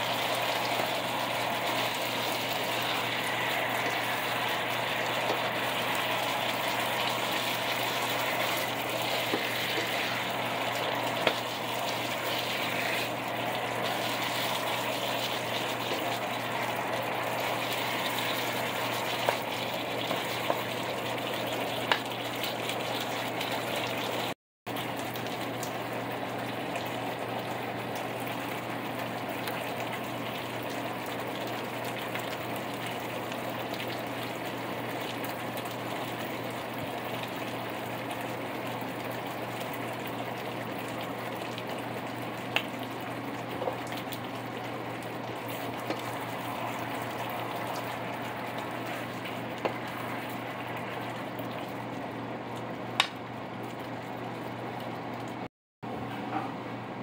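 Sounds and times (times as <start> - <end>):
chicken sizzling in a frying pan: 0.0 - 54.7.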